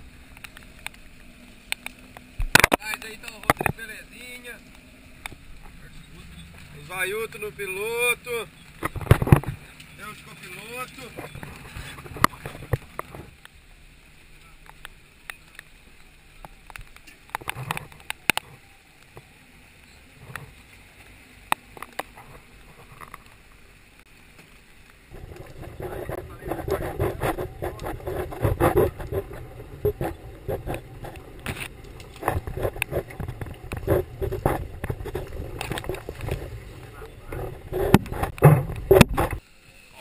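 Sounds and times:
vehicle rumble and clatter: 0.0s - 24.1s, 24.9s - 39.4s
brush scraping vehicle side: 8.8s - 13.3s, 25.1s - 39.4s
faint low engine drone: 25.0s - 40.0s.

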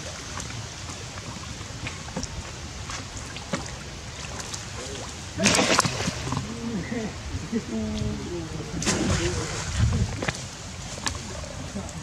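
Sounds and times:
small splashes: 0.0s - 6.7s, 8.7s - 12.0s
water sloshing and lapping: 0.0s - 12.0s
loud splash: 3.4s - 6.4s, 8.8s - 10.2s.

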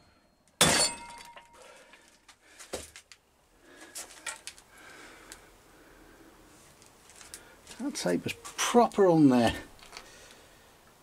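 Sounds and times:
sledgehammer clang on metal: 0.6s - 1.6s.

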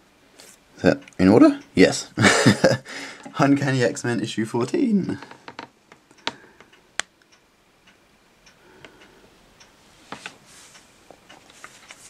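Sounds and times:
plastic sleeve rustle: 11.4s - 12.0s.

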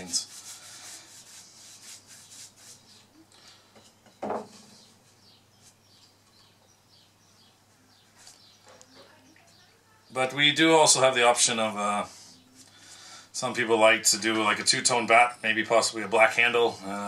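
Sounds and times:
brush rubbing on wooden bat: 0.0s - 3.2s.

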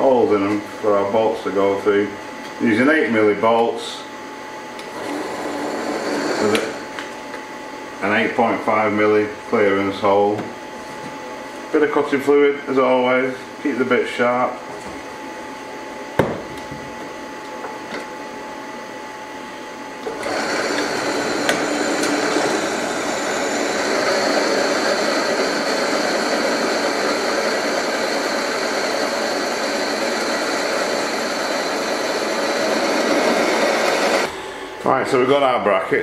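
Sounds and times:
drill press running: 4.8s - 7.4s, 19.4s - 35.2s
drill bit cutting metal: 4.9s - 6.9s, 20.0s - 34.3s.

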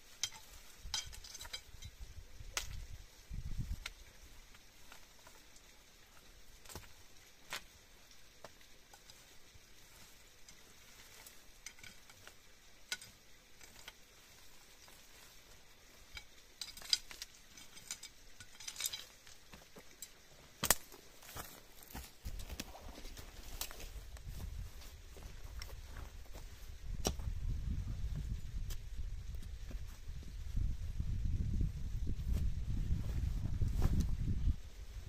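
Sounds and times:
sharp crackles and ticks: 0.1s - 2.8s, 3.8s - 9.4s, 10.0s - 15.3s, 15.9s - 21.0s.

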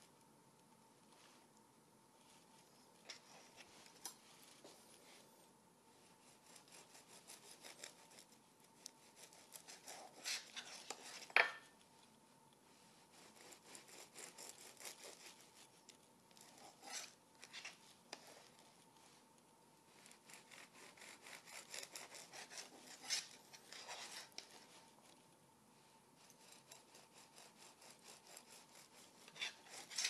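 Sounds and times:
knife sawing through bread crusts: 6.0s - 11.5s, 12.9s - 18.9s, 19.9s - 25.2s, 26.2s - 30.0s.

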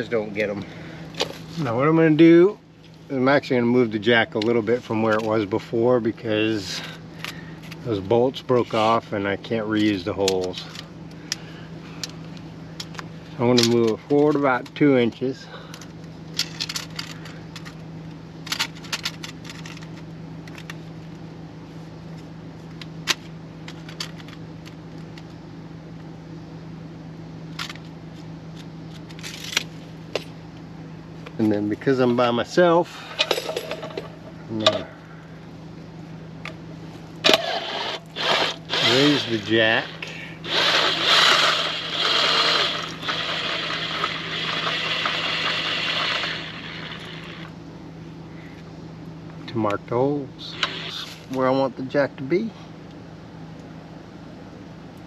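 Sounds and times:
steady low hum: 0.0s - 55.0s
cordless drill spinning: 37.3s - 47.5s, 50.5s - 51.0s.

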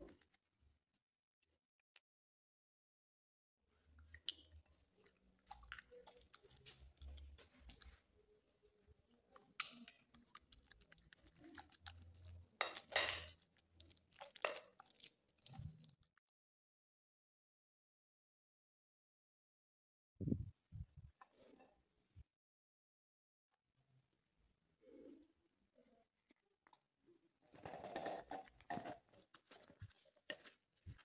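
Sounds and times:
dough squelching: 3.9s - 16.2s, 29.0s - 31.0s.

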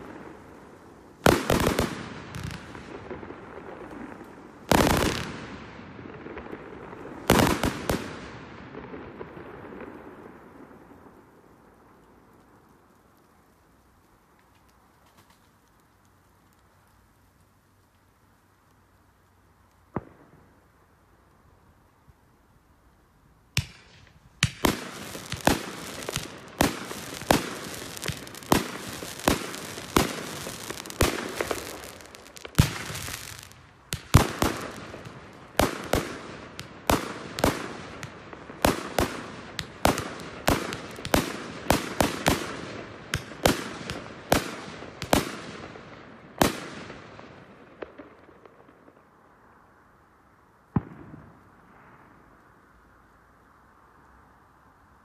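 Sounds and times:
fireworks crackling: 0.0s - 21.5s, 23.6s - 49.4s
fireworks bangs: 1.2s - 11.0s, 23.6s - 49.1s, 50.7s - 52.1s.

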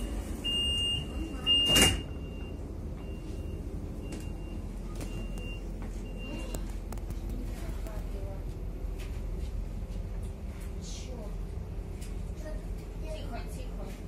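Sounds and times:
sliding doors shutting: 0.0s - 2.6s
door warning beeps: 0.0s - 6.7s
train rumble: 0.0s - 14.0s.

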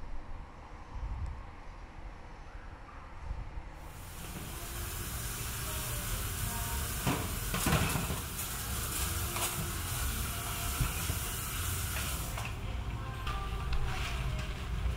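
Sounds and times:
steady hiss: 3.8s - 14.4s
kitchen knocks and clatters: 7.0s - 8.4s.

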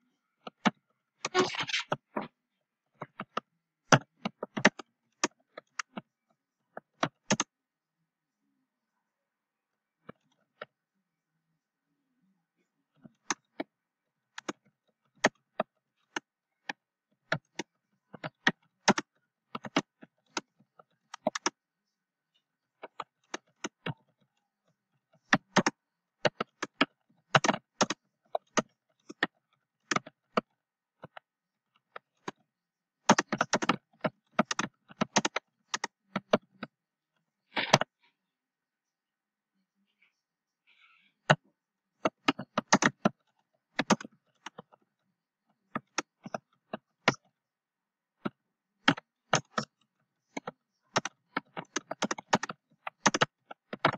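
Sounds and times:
keyboard keystroke clicks: 33.1s - 36.7s, 42.0s - 43.2s, 43.8s - 44.7s, 50.4s - 53.9s.

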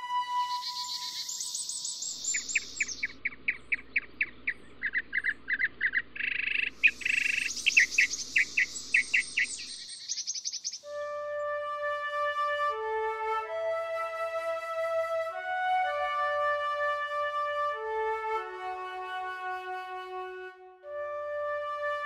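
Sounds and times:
birds chirping: 0.4s - 10.9s
high rapid bird trills: 0.5s - 10.9s.

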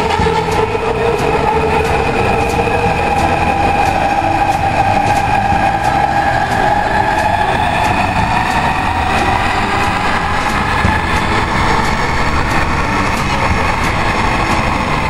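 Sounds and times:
train motor whine: 0.0s - 15.0s
train rumble: 0.0s - 15.0s.

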